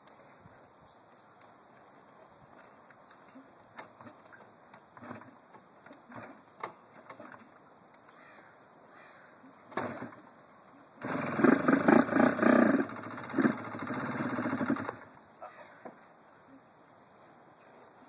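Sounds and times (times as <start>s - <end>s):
faint clicks: 1.4s - 2.0s, 7.9s - 8.7s
motorcycle engine revving: 11.0s - 15.1s.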